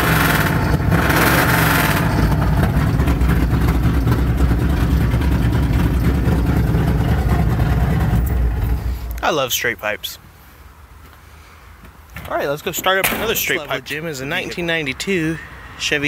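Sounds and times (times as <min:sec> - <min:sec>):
pickup truck engine idling: 0:00.0 - 0:09.2.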